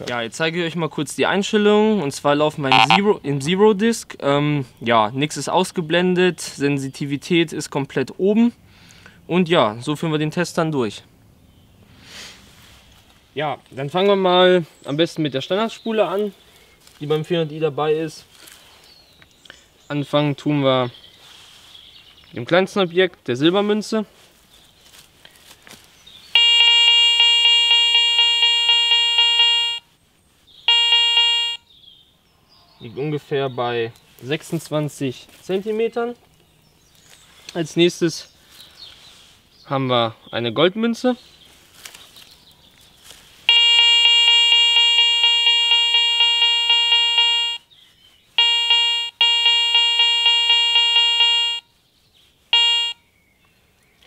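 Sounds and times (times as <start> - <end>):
metal detector pulsing tone: 2.7 - 3.0, 26.4 - 29.8, 30.7 - 31.6, 43.5 - 47.6, 48.4 - 51.6, 52.6 - 53.0.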